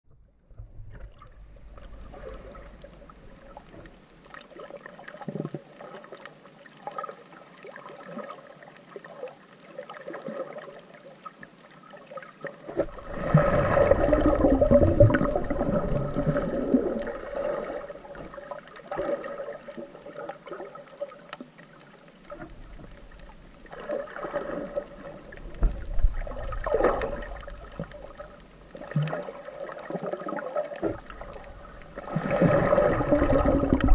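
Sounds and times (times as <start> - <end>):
water gurgling and sloshing: 0.0 - 33.9
water churning: 12.0 - 21.4, 22.2 - 33.9.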